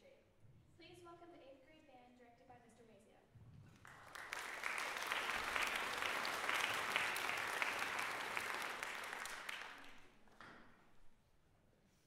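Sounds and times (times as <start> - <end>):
audience applauding: 3.7 - 10.4.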